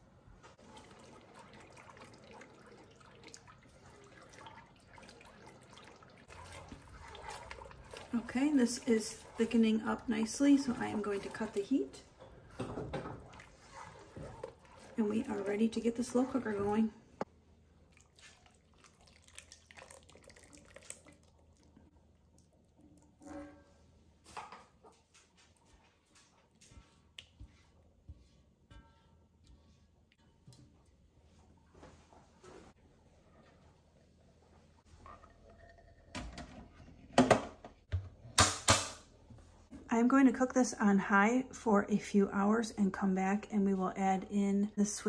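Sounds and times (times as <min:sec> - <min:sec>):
thick sauce being stirred: 0:00.6 - 0:23.2
thick sauce pouring: 0:17.9 - 0:23.2.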